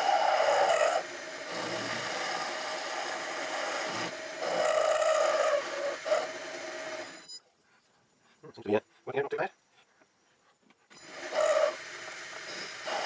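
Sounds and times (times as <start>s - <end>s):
metal lathe whine: 0.0s - 7.4s.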